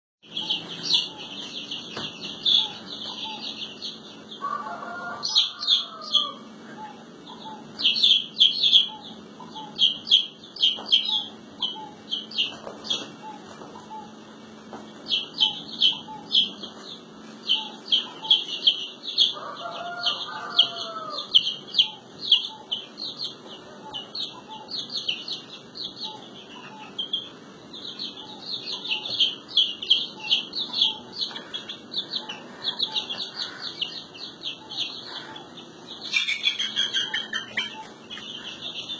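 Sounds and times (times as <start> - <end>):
chicks peeping: 0.2 - 38.9.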